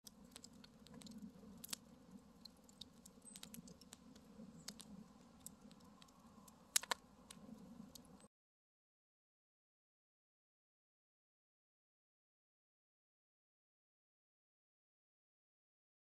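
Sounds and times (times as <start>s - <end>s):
wood fire crackling: 0.0s - 8.3s.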